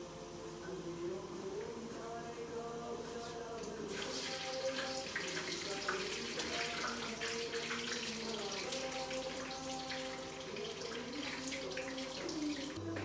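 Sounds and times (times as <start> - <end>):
soft background music: 0.0 - 13.0
water running and splashing: 3.9 - 12.8.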